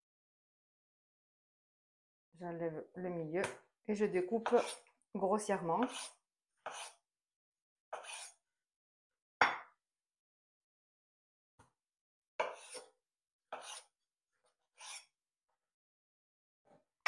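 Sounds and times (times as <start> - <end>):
knife cutting tomato: 4.4 - 4.9, 5.8 - 7.0, 7.9 - 8.4, 12.4 - 13.9.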